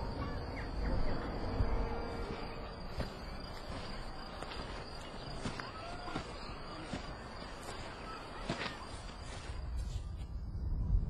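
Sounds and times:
low rumble: 0.0 - 4.3
crickets chirping: 0.0 - 11.0.

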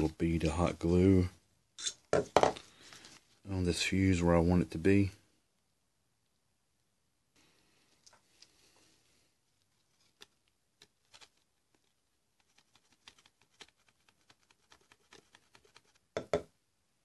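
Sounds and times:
paper handling: 9.7 - 16.0.

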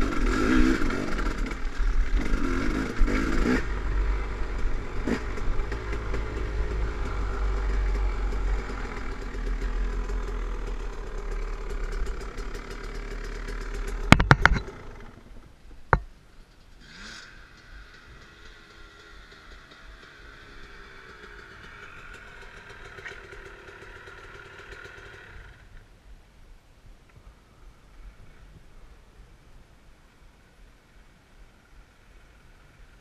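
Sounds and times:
dirt bike engine: 0.0 - 25.8
chassis clatter: 4.5 - 15.2
sharp knocks: 14.0 - 14.7.

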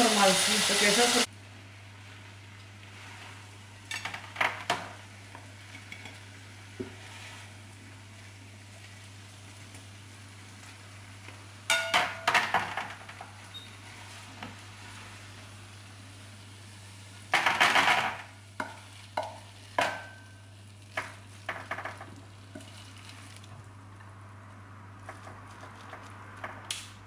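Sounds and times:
spatula scraping frying pan: 6.8 - 7.6.

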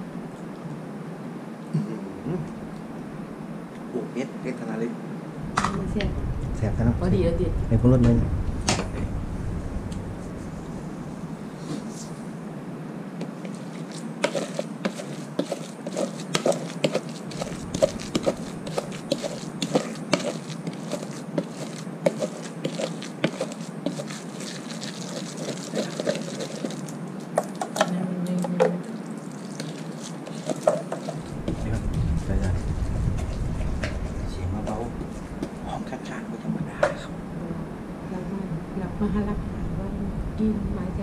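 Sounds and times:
wooden pestle pounding in mortar: 14.2 - 27.9, 29.5 - 31.8.

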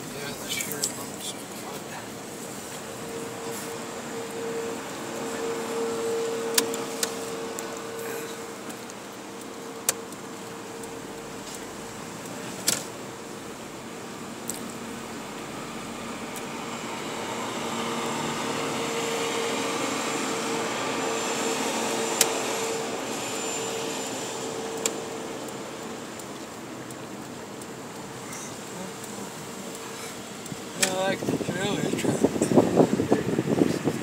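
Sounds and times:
car engine and road hum: 0.0 - 34.0
fan-like drone: 0.0 - 34.0.

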